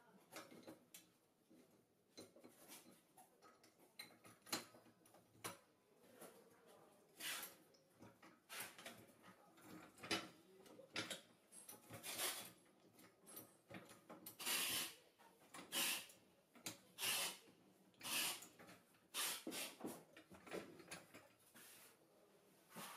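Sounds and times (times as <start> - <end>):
trolley jack scraping and clicking: 7.2 - 7.6, 11.1 - 12.6, 14.2 - 15.0, 15.6 - 16.1, 16.9 - 17.4, 18.0 - 20.0.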